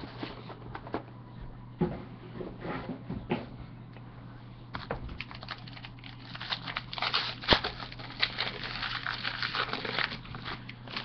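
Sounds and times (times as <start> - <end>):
foil pack crinkling as torn open: 4.7 - 11.0.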